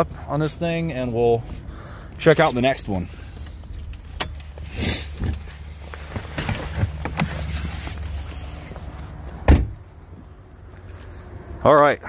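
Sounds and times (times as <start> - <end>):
car door shutting: 9.3 - 9.8.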